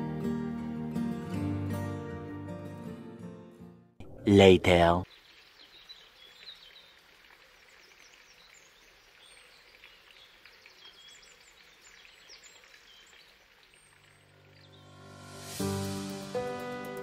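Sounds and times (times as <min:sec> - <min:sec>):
small birds chirping: 0:05.0 - 0:15.0.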